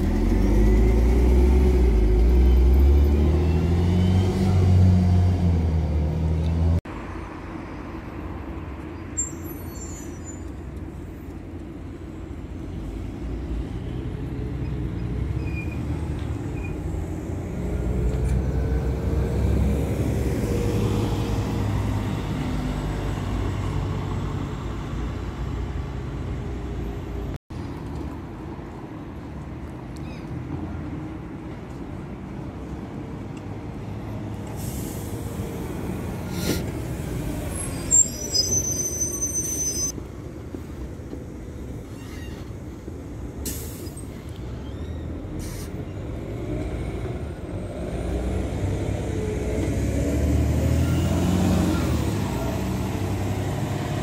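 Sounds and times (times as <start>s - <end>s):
bus engine pulling away: 0.0s - 8.2s, 8.8s - 28.5s, 30.5s - 54.0s
bus passing by: 0.0s - 9.7s, 10.6s - 29.4s, 30.7s - 54.0s
street traffic: 0.0s - 54.0s.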